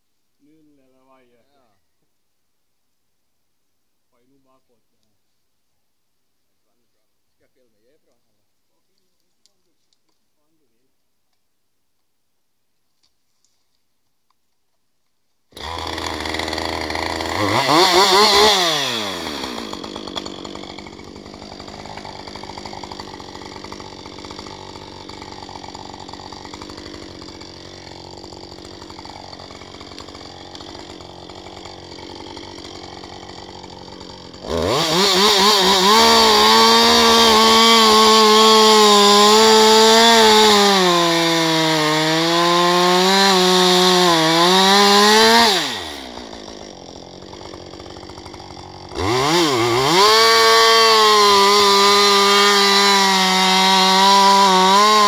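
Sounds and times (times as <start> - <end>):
chainsaw cutting into log: 15.5 - 55.0
chainsaw starting and idling: 15.5 - 55.0.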